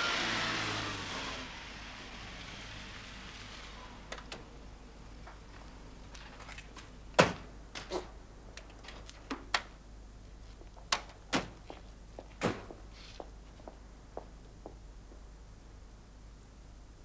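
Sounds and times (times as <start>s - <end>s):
footsteps on paving: 11.6s - 15.3s.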